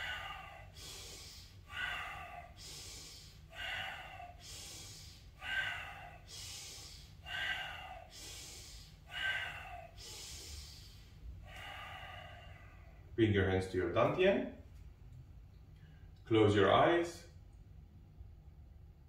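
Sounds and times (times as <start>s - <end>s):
person breathing deeply: 0.0s - 13.2s.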